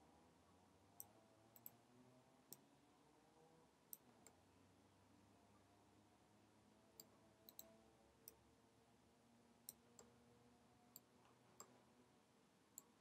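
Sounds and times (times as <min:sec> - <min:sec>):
mouse and keyboard clicks: 0:07.0 - 0:07.7.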